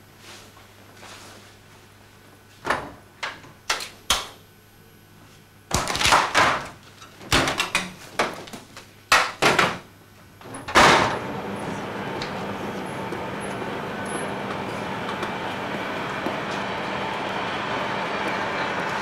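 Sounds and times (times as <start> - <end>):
metal locker doors opening and shutting: 10.5 - 11.3.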